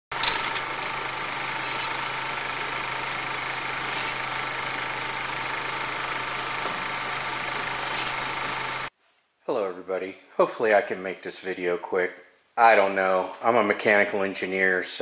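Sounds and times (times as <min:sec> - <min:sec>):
film projector whirring: 0:00.1 - 0:08.9.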